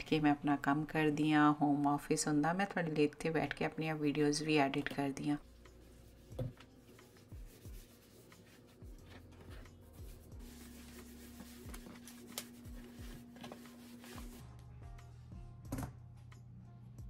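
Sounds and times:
soft background music: 0:00.0 - 0:17.0
cloth wiping a desk: 0:05.4 - 0:14.4.

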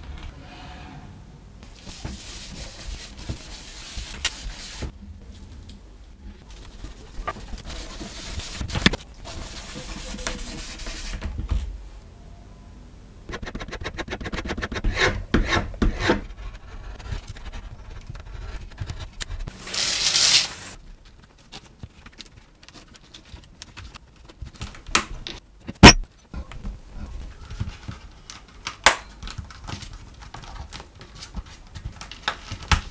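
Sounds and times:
rustling: 0:16.3 - 0:24.8.

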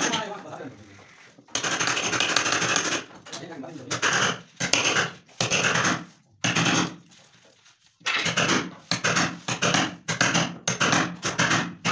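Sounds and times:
hammer striking wood chisel: 0:01.5 - 0:03.1, 0:03.9 - 0:07.0, 0:08.1 - 0:11.9.

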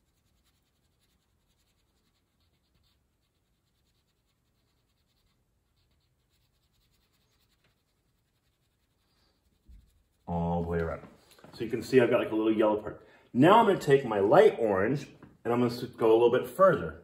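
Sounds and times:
crayon scratching on paper: 0:00.0 - 0:10.9.

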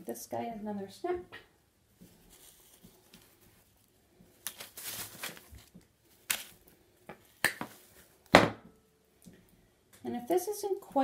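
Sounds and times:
rustling handling: 0:01.8 - 0:08.3.

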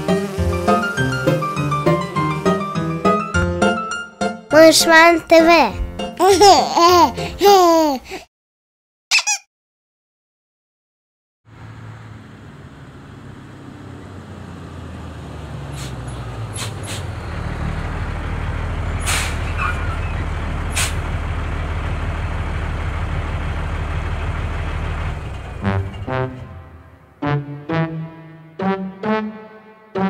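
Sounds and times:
brass-like musical notes: 0:00.0 - 0:03.6, 0:25.6 - 0:30.0
truck engine running: 0:00.0 - 0:03.8, 0:11.5 - 0:27.6
brief sharp noises: 0:19.0 - 0:19.6.

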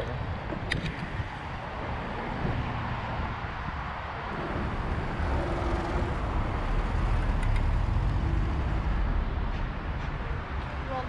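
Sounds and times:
road vehicle rumble: 0:00.0 - 0:11.0.

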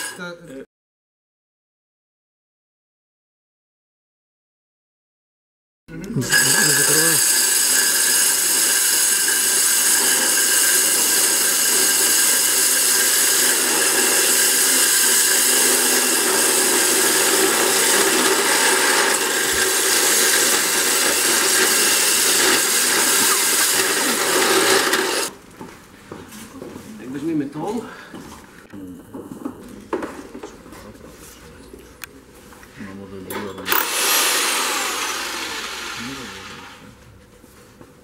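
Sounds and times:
core bit grinding brick: 0:06.1 - 0:25.3, 0:33.6 - 0:36.8
electric drill motor whine: 0:06.2 - 0:25.3, 0:33.7 - 0:36.9.

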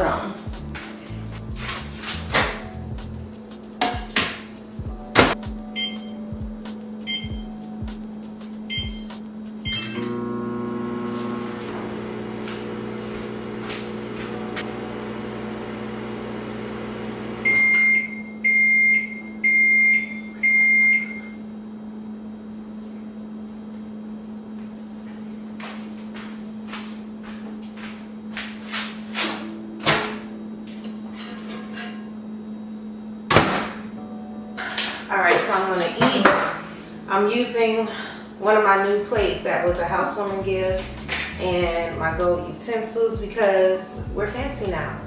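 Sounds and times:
microwave humming: 0:00.0 - 0:25.7, 0:29.4 - 0:39.9
microwave key beep: 0:05.7 - 0:06.2, 0:07.1 - 0:07.5, 0:08.7 - 0:09.1, 0:09.7 - 0:10.1, 0:17.4 - 0:21.4
microwave long beeps: 0:05.7 - 0:06.3, 0:07.0 - 0:07.6, 0:08.7 - 0:21.6, 0:32.4 - 0:33.3.

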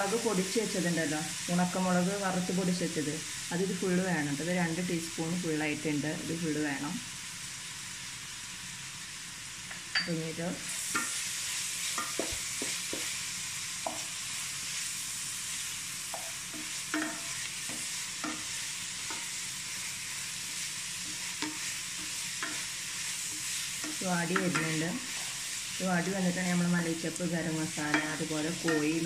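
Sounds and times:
onions sizzling in oil: 0:00.0 - 0:29.0
spatula scraping pan: 0:16.2 - 0:26.6, 0:27.6 - 0:29.0.

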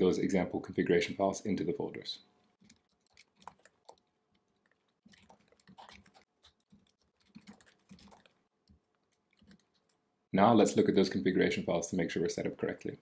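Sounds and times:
faint keyboard typing: 0:02.4 - 0:10.0.

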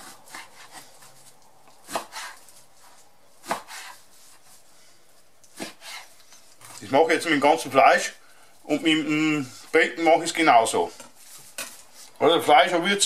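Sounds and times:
knife slicing meat: 0:01.8 - 0:04.6, 0:05.4 - 0:06.8.

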